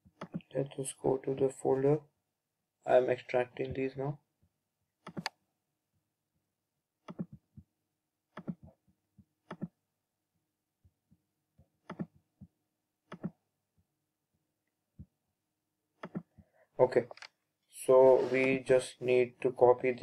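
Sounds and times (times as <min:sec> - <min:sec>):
computer mouse buttons clicking: 0:00.2 - 0:00.5, 0:05.0 - 0:05.4, 0:07.1 - 0:07.4, 0:08.4 - 0:08.7, 0:09.5 - 0:09.8, 0:11.8 - 0:12.2, 0:13.1 - 0:13.4, 0:16.0 - 0:16.4.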